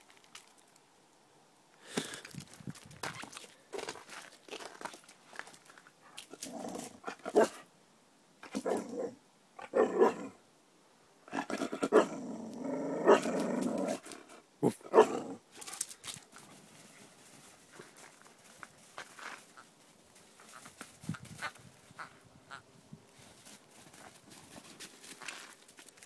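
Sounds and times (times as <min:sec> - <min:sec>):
dog growling playfully: 0:06.3 - 0:07.5, 0:08.5 - 0:10.4, 0:11.3 - 0:15.4.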